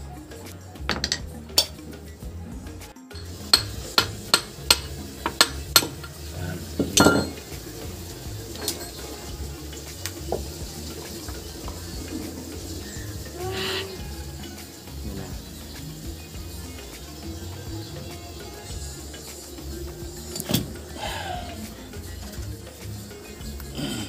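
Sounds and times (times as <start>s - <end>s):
steel parts clinking: 0.9s - 1.8s, 3.1s - 6.2s, 6.8s - 7.5s, 8.6s - 9.2s.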